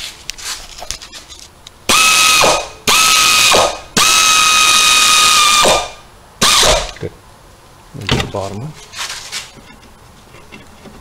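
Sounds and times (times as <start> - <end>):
air ratchet whining: 1.9 - 5.8.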